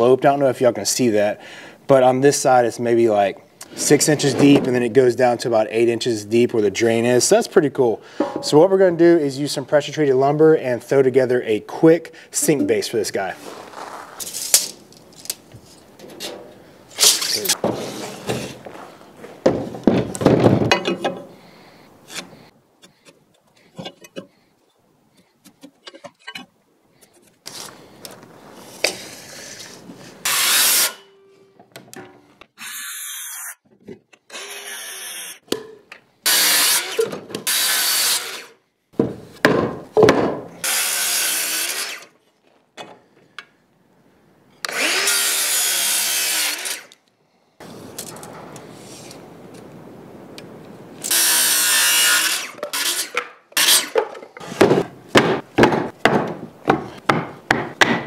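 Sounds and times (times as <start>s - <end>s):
power saw cutting wood: 30.2s - 31.1s, 34.3s - 35.4s, 36.2s - 38.5s, 40.6s - 42.1s, 44.6s - 46.9s, 51.0s - 54.7s.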